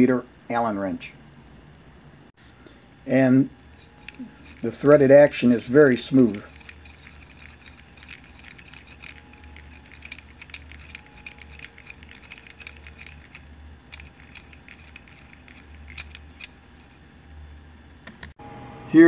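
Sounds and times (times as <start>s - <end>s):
clamp screw clicking: 3.7s - 4.7s, 6.2s - 16.9s.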